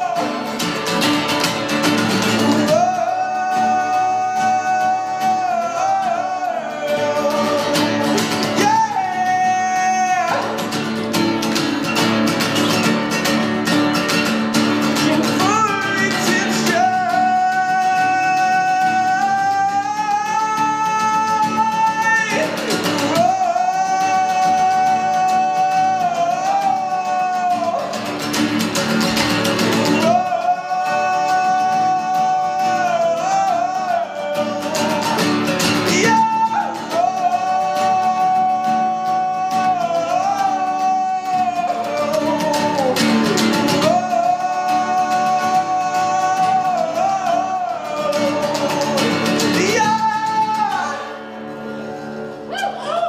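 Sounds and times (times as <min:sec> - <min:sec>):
person singing long notes: 0:00.0 - 0:10.8, 0:14.8 - 0:53.0
acoustic guitars strummed: 0:00.0 - 0:53.0.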